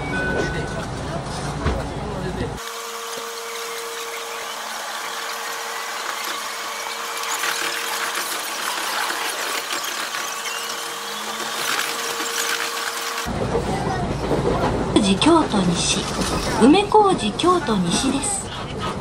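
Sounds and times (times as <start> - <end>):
electric train running hiss: 2.6 - 13.3.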